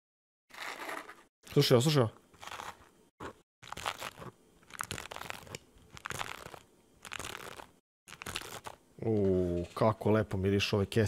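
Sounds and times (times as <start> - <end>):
sticker packets crinkling: 3.6 - 8.8.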